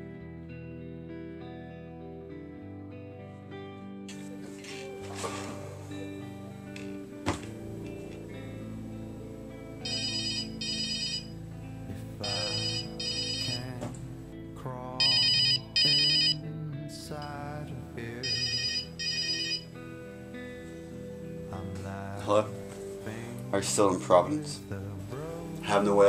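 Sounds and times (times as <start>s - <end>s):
phone ringtone trilling: 9.8s - 11.4s, 12.2s - 13.7s, 15.0s - 16.4s, 18.2s - 19.8s.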